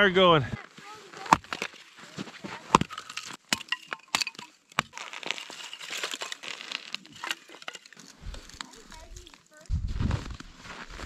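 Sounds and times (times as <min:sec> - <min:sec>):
wood chopping cracks: 0:01.2 - 0:01.8, 0:02.4 - 0:09.5.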